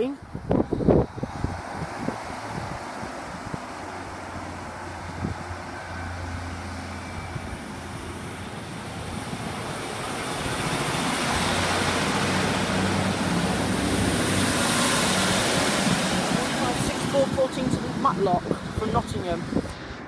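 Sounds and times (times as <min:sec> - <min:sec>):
low engine hum: 0:00.0 - 0:20.0
train passing: 0:01.1 - 0:20.0.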